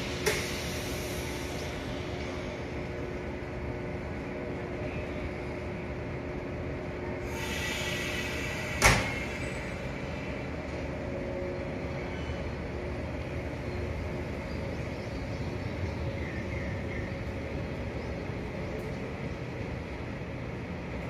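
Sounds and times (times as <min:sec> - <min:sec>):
air hiss: 0:00.0 - 0:02.8, 0:07.2 - 0:10.4
electric train humming: 0:00.0 - 0:21.0
train doors closing thud: 0:00.2 - 0:00.7, 0:08.2 - 0:09.7.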